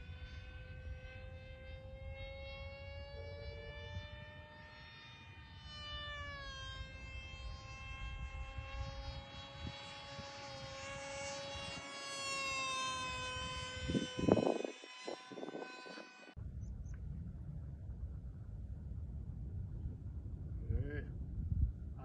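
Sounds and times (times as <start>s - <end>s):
model jet motor whine: 0.0s - 17.0s.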